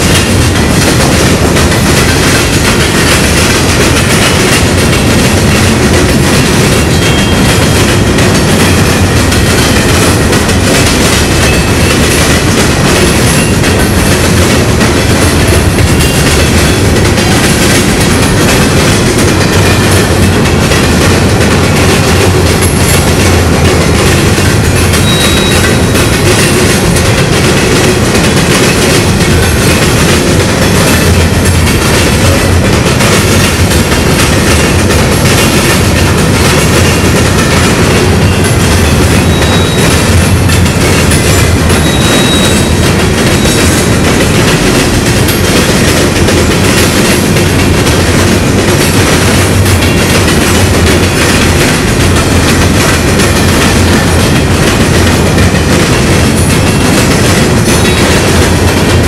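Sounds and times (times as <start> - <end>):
train wheels clattering: 0.0 - 59.0
faint high wheel squeal: 25.0 - 25.9, 39.2 - 40.0, 41.8 - 42.8.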